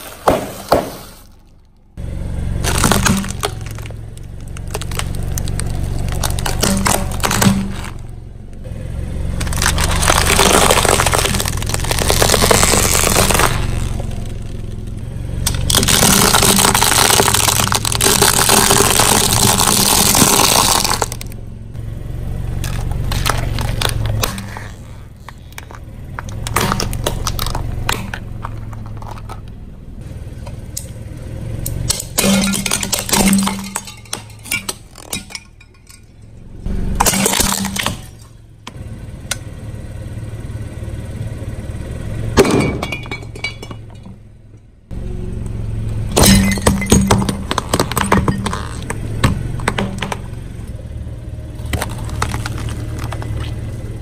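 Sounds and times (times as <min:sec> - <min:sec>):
tyre crushing objects: 0:00.0 - 0:01.7, 0:02.6 - 0:08.1, 0:09.3 - 0:14.6, 0:15.5 - 0:21.4, 0:22.6 - 0:29.5, 0:46.1 - 0:50.4, 0:51.6 - 0:53.8
low engine hum: 0:00.0 - 0:54.0.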